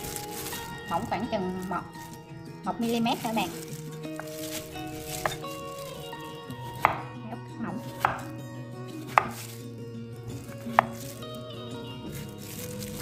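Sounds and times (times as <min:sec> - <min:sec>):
knife chopping on cutting board: 0:06.7 - 0:07.1, 0:07.9 - 0:08.3, 0:09.1 - 0:09.6, 0:10.6 - 0:11.2.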